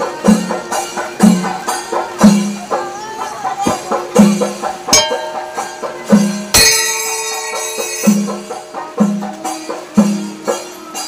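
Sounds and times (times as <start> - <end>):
low drum strokes: 0.0 - 11.0
ringing metallic crash: 3.7 - 10.7.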